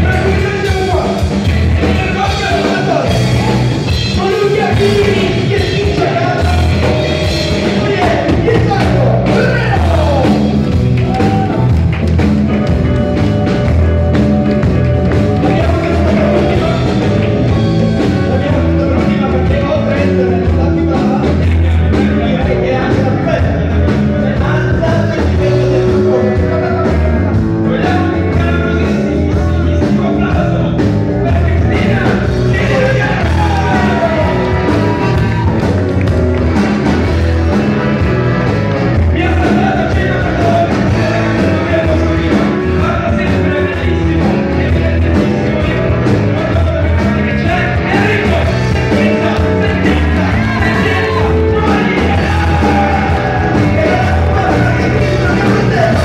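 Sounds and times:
blues band playing: 0:00.0 - 0:56.0
men singing into microphones: 0:27.6 - 0:35.5, 0:39.1 - 0:56.0.

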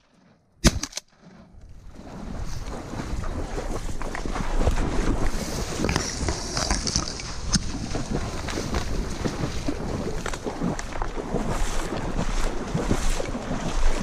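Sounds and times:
wind on microphone: 0:01.4 - 0:14.0
dry reeds rustling and snapping: 0:05.7 - 0:09.3.

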